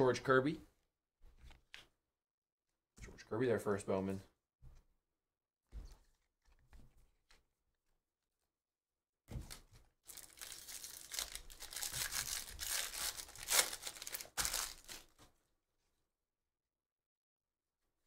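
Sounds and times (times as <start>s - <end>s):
foil wrapper tearing and crinkling: 10.0s - 15.1s.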